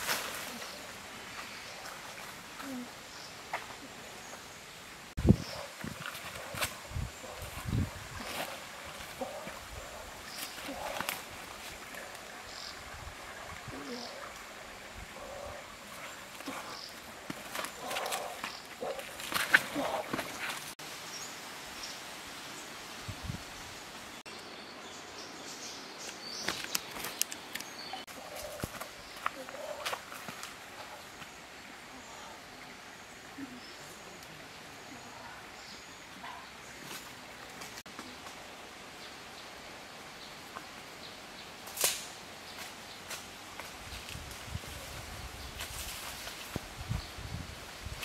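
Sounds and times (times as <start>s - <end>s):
dry leaves rustling and crackling: 0.0s - 0.8s
outdoor background hiss: 0.0s - 48.0s.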